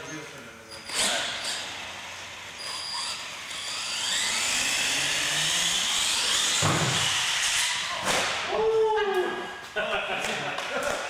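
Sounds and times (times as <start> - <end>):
toy truck motor whining: 0.6 - 7.9
truck hitting ramp thump: 6.5 - 7.4.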